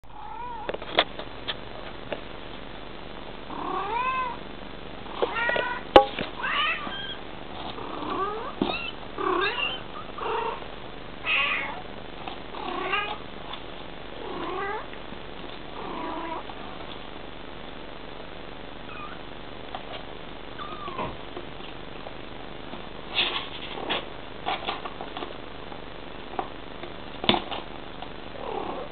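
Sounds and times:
cat meowing: 0.1s - 0.8s, 3.6s - 4.4s, 5.3s - 7.2s, 8.0s - 10.6s, 11.2s - 11.8s, 18.9s - 19.2s, 20.6s - 21.2s.

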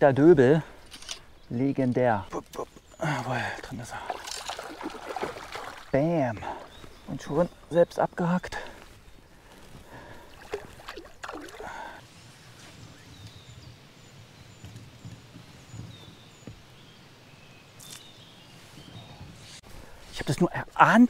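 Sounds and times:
distant songbird chirping: 0.0s - 20.6s
low river ambience: 0.7s - 21.0s.

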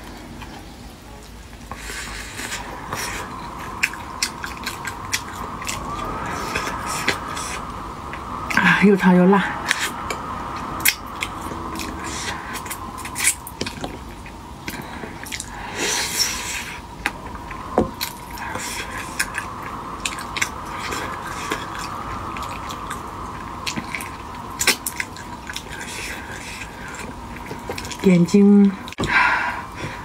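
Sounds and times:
sucking and chewing: 1.7s - 7.6s, 10.8s - 28.1s.

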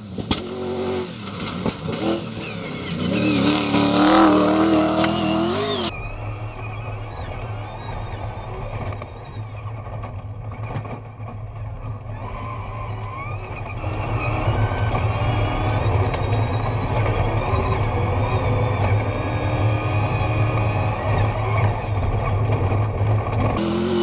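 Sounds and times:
car engine running hard: 0.0s - 24.0s.

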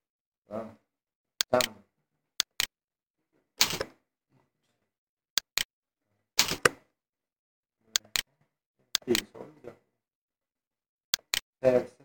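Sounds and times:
mouse and keyboard clicks: 1.4s - 1.8s, 2.4s - 2.7s, 3.6s - 3.9s, 5.4s - 5.7s, 6.4s - 6.8s, 8.0s - 8.3s, 9.0s - 9.3s, 11.2s - 11.5s.

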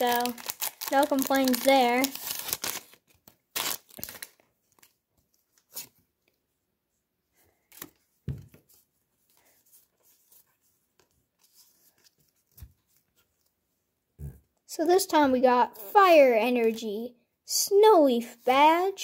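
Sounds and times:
cards and wrappers rustling: 0.0s - 6.0s
soft thump on table: 8.3s - 8.6s.

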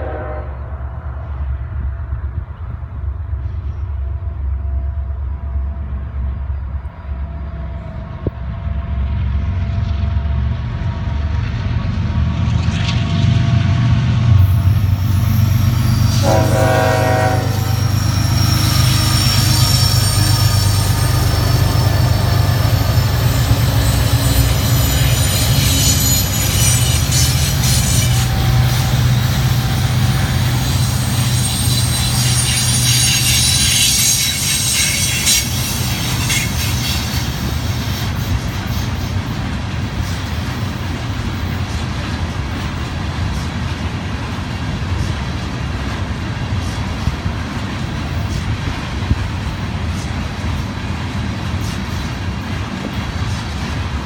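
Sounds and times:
train horn blast: 0.0s - 0.9s, 14.6s - 18.2s, 24.3s - 37.3s
diesel locomotives running: 0.0s - 54.0s
train wheels clacking: 12.2s - 54.0s
high wheel squealing: 14.4s - 39.2s.

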